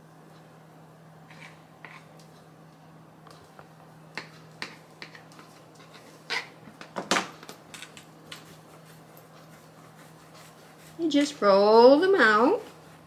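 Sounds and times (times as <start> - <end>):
knife cutting dough on countertop: 1.3 - 2.2, 4.2 - 7.0.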